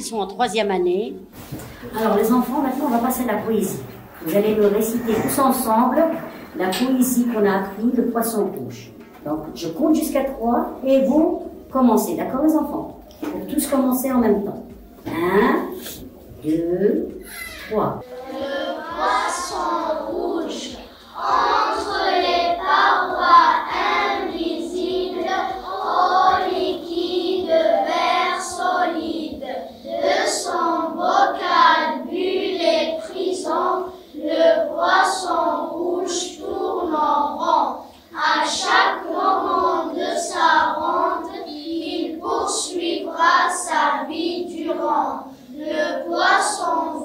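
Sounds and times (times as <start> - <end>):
children reciting in unison: 1.4 - 8.2, 17.2 - 47.0.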